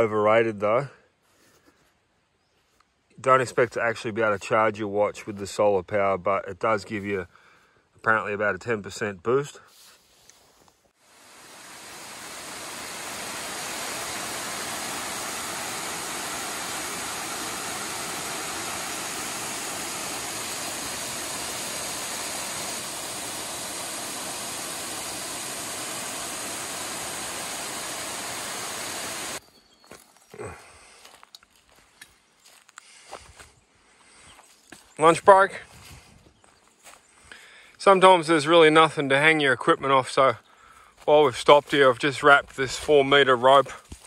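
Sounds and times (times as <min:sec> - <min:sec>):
waterfall rushing: 0:11.1 - 0:29.4.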